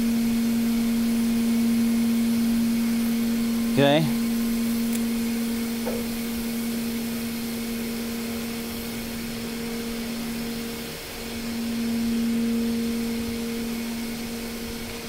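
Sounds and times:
steady machinery hum: 0:00.0 - 0:15.0
even hiss: 0:00.5 - 0:15.0.

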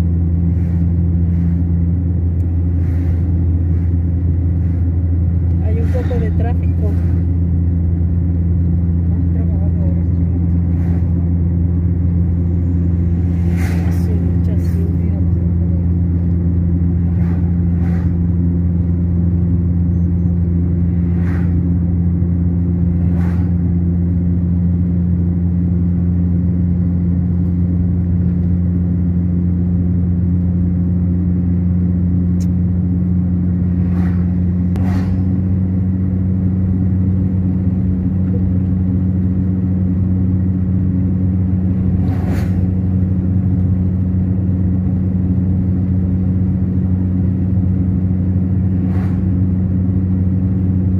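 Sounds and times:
passing vehicle whoosh: 0:00.0 - 0:07.5, 0:10.3 - 0:25.1, 0:33.5 - 0:36.7, 0:41.6 - 0:43.2, 0:48.6 - 0:50.2
car engine and road drone: 0:00.0 - 0:50.9.

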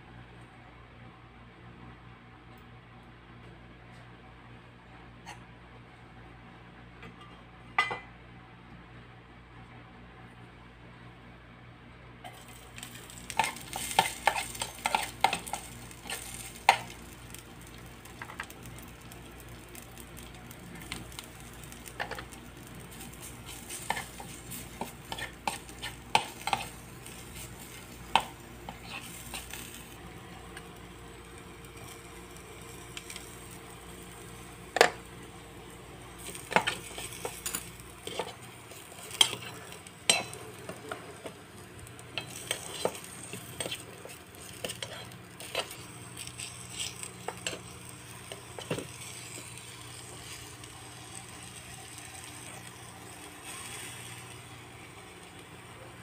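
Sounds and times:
faint sizzle: 0:12.2 - 0:56.0
metal spoon scraping a pan: 0:12.3 - 0:17.0, 0:23.2 - 0:29.8, 0:36.2 - 0:40.4, 0:42.2 - 0:47.7.

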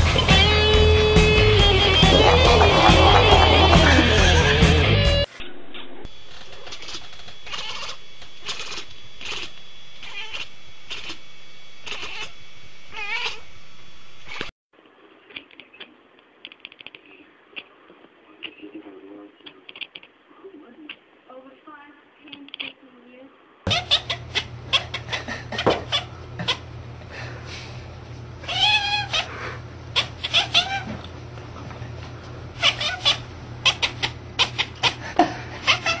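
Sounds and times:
cat clicking chatter: 0:06.6 - 0:11.2, 0:11.8 - 0:12.3, 0:15.3 - 0:17.7, 0:19.4 - 0:20.1, 0:22.3 - 0:22.8, 0:32.6 - 0:35.0
cats yowling meows: 0:06.8 - 0:11.2, 0:11.8 - 0:12.3, 0:12.9 - 0:13.4, 0:28.4 - 0:31.0, 0:32.6 - 0:35.0, 0:35.6 - 0:36.0.

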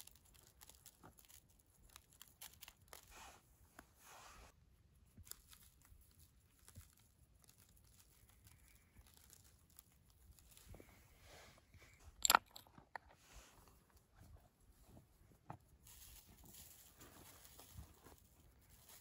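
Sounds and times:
crunching in snow: 0:15.8 - 0:19.0.

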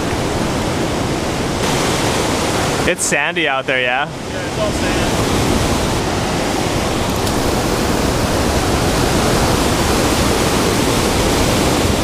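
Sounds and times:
surf breaking on a cobble beach: 0:00.0 - 0:12.0.

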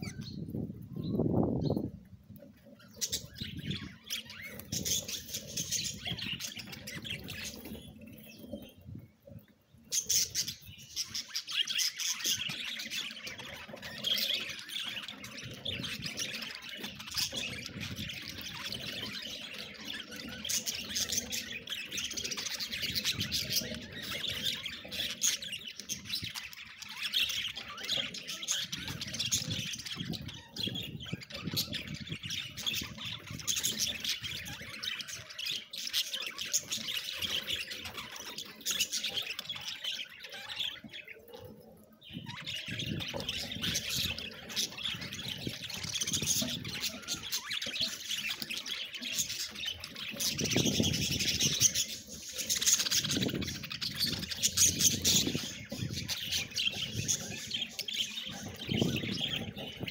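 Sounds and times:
budgerigars chattering and chirping: 0:02.5 - 0:59.9.

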